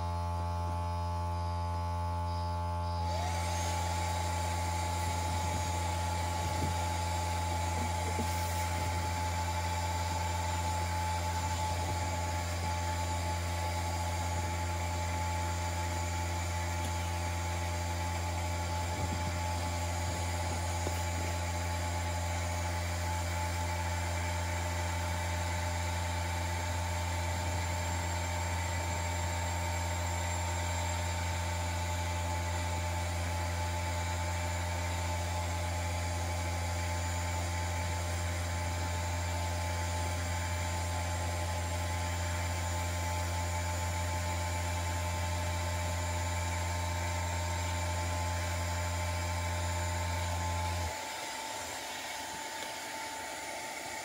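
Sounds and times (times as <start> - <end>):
strong low hum: 0.0 - 23.3
vacuum motor hiss and whine: 0.0 - 54.0.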